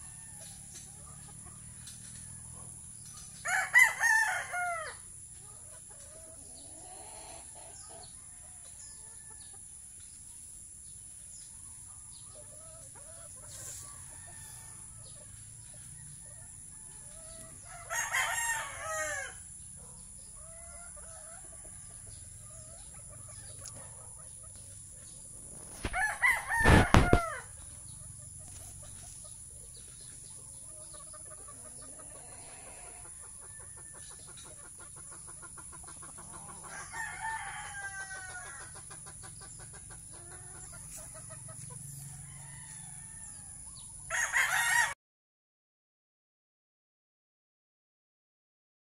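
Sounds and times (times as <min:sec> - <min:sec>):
chickens clucking: 0:00.0 - 0:44.1
rooster crowing: 0:03.4 - 0:05.0, 0:14.0 - 0:15.1, 0:16.8 - 0:19.5, 0:25.8 - 0:27.6, 0:36.5 - 0:38.8, 0:42.0 - 0:45.0
thump on microphone: 0:26.6 - 0:27.2.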